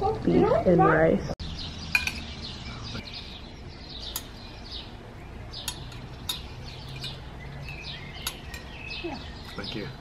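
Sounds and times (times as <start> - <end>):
small birds chirping: 0.0 - 10.0
metal tongs clinking on plates: 5.6 - 8.8.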